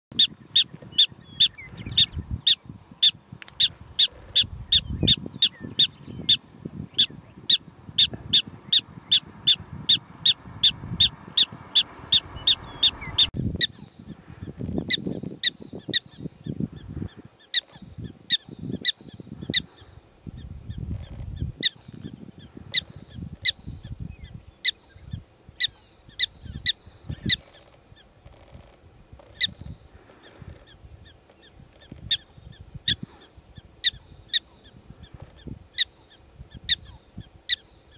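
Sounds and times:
prairie dogs barking: 0.1s - 16.2s, 29.2s - 37.7s.

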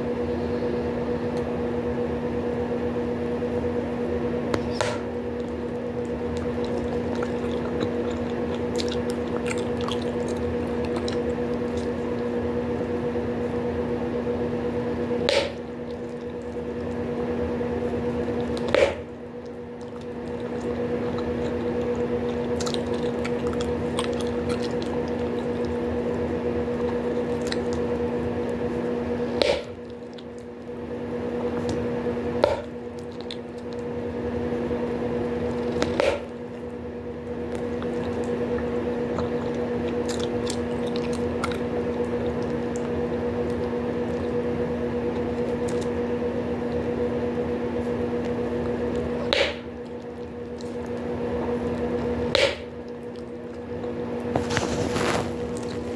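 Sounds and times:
steady background hum: 0.0s - 55.9s
gum chewing wet squishing: 3.3s - 55.9s
gum bubbles popping: 4.6s - 12.5s, 15.3s - 30.8s, 31.4s - 34.0s, 35.0s - 46.9s, 47.8s - 54.4s.

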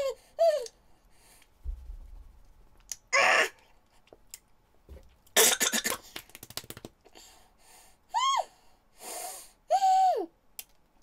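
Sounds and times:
woman hissing breath: 7.7s - 10.3s.

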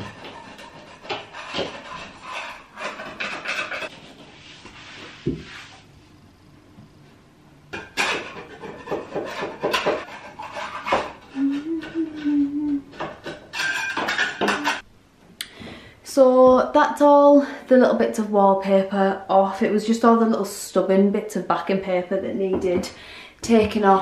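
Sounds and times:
scraper scraping wallpaper: 0.0s - 5.9s, 8.3s - 12.4s.

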